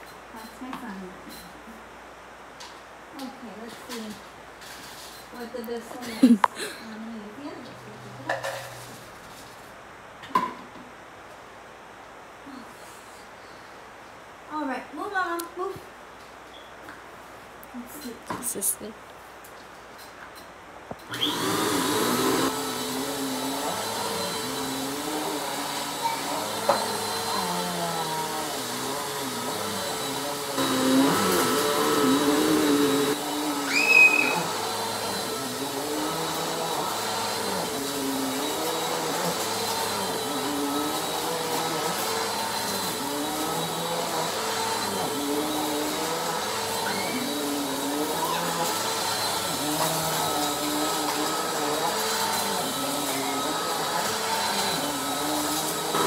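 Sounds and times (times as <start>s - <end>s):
vacuum cleaner running: 21.1s - 56.0s
high squeak: 33.6s - 34.5s, 46.8s - 47.4s.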